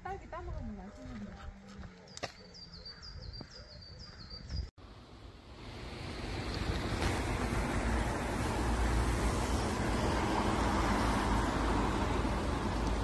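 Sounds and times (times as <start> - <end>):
small bird chirping: 2.0 - 4.7
road traffic rushing: 4.8 - 13.0.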